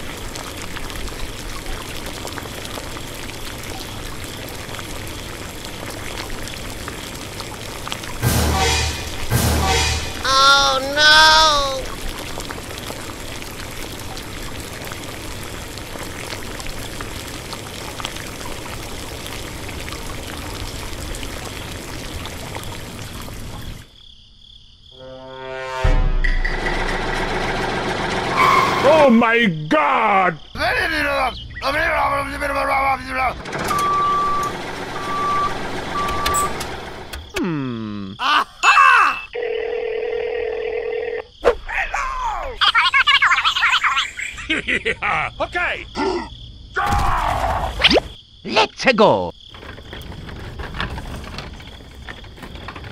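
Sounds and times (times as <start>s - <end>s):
faint water drips: 0.0s - 8.2s, 10.4s - 24.0s
water trickling through pipes: 0.0s - 24.0s, 28.3s - 39.1s, 49.1s - 52.9s
warbling cartoon voice: 10.2s - 11.9s, 37.4s - 39.4s, 41.5s - 48.8s
short beeps: 33.7s - 36.5s
dial tone: 39.4s - 41.3s.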